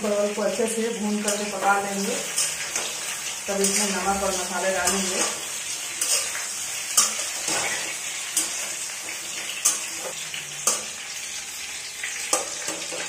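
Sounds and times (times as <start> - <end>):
potatoes sizzling in a pot: 0.0 - 13.0.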